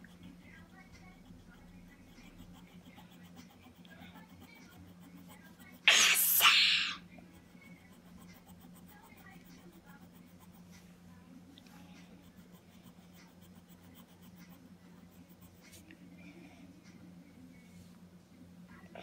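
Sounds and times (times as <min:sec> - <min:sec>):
marker scratching on paper: 0:00.0 - 0:11.0, 0:12.0 - 0:15.8
low steady hum: 0:00.0 - 0:19.0.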